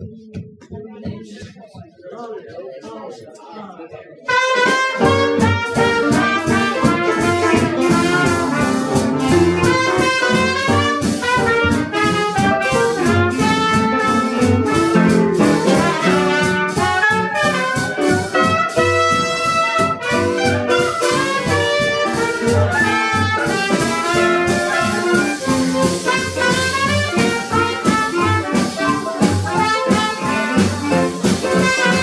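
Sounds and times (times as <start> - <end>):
drums swing beat: 0.0 - 2.6, 4.3 - 32.0
clarinet: 4.3 - 32.0
trumpet: 4.3 - 32.0
plucked upright bass: 5.0 - 19.1.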